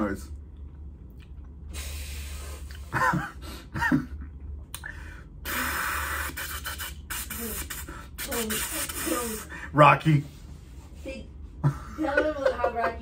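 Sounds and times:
person hissing with mouth: 5.4s - 9.6s.

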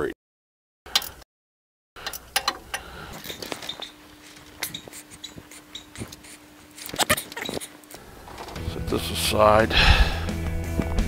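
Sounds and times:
tools clinking against metal: 2.0s - 6.2s.

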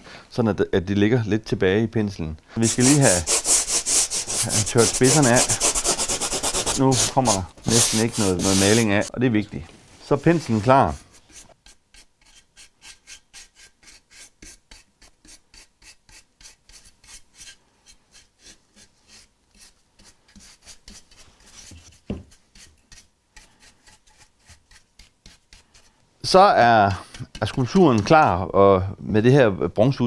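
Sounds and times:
paintbrush scrubbing rough concrete: 2.6s - 9.1s, 10.1s - 25.9s.

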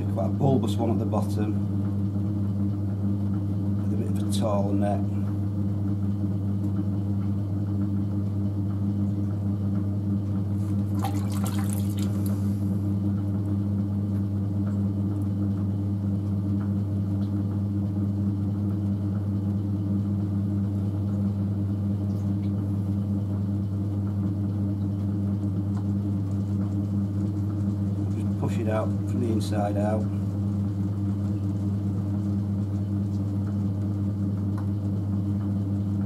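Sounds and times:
potter's wheel motor hum: 0.0s - 36.0s
wet clay swish: 10.6s - 12.7s.

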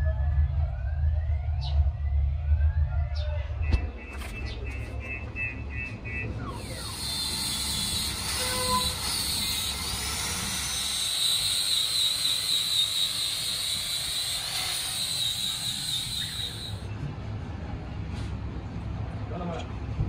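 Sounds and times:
angle grinder buffing rubber: 6.6s - 16.8s.

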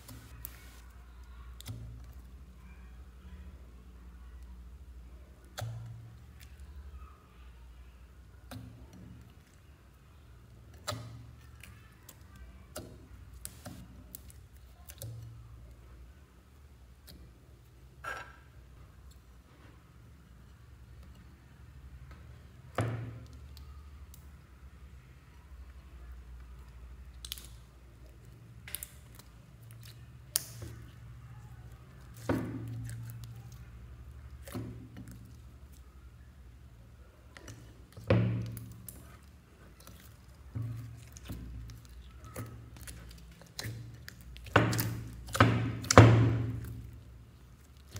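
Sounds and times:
slime squelching and popping: 10.5s - 15.4s, 26.9s - 36.6s, 37.2s - 47.9s.

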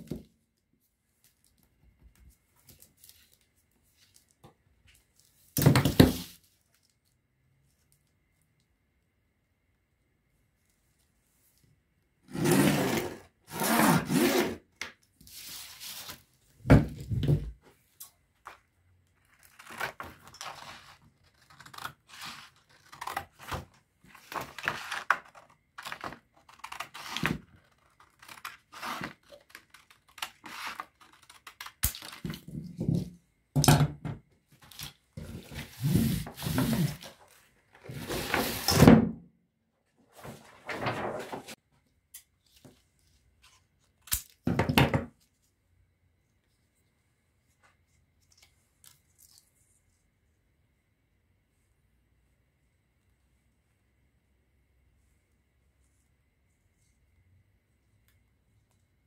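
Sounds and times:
plastic sheet rustling: 40.1s - 41.6s.

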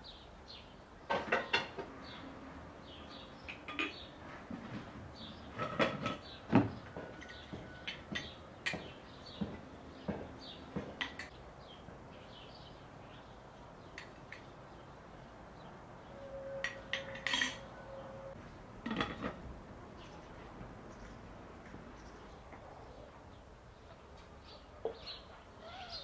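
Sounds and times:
porcelain clinks and knocks: 3.5s - 4.0s, 7.0s - 8.9s
small birds chirping: 5.1s - 17.1s, 19.9s - 26.0s.

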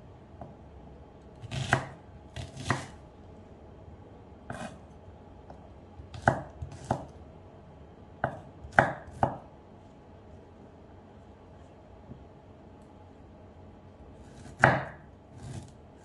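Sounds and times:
knife chopping on wooden board: 1.4s - 3.0s, 4.5s - 4.8s, 5.5s - 7.1s, 8.2s - 9.5s, 14.3s - 15.8s.

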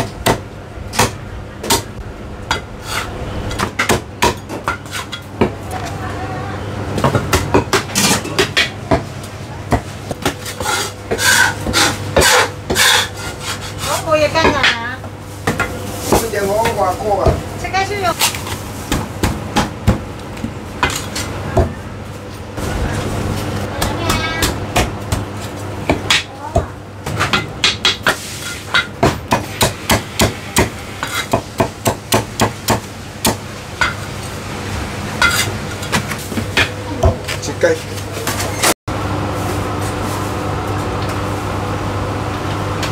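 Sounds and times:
cleaver chopping meat on wood: 18.9s - 20.1s, 29.0s - 33.4s.

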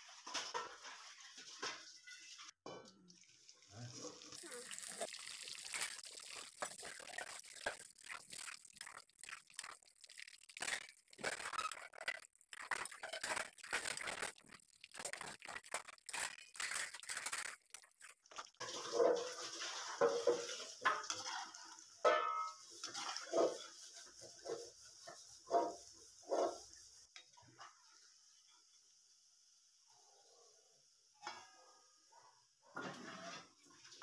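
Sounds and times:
hot oil sizzling: 3.4s - 29.9s.

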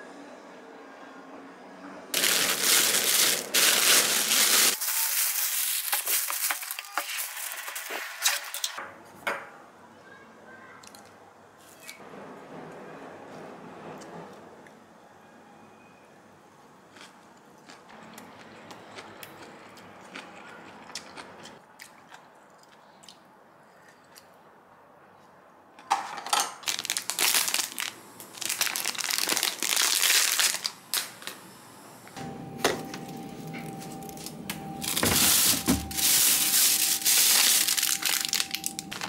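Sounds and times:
plastic bags rustling: 2.2s - 8.8s, 26.3s - 31.4s, 32.8s - 39.0s
plastic wrappers crinkling: 2.2s - 8.8s, 26.6s - 31.4s, 33.6s - 39.0s
steady high tone: 32.2s - 39.0s.

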